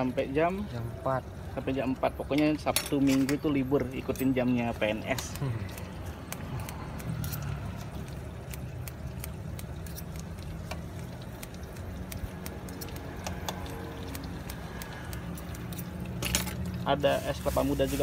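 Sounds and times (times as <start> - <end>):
scissors snipping: 5.2 - 16.2.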